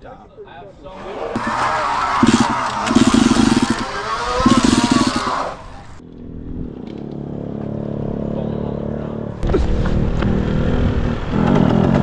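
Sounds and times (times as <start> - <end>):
dirt bike engine revving: 1.0 - 6.0.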